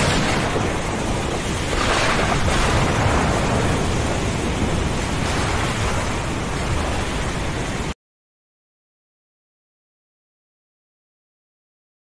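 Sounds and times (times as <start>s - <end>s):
low rumble of thunder: 0.0s - 7.9s
rain hissing: 0.0s - 8.0s.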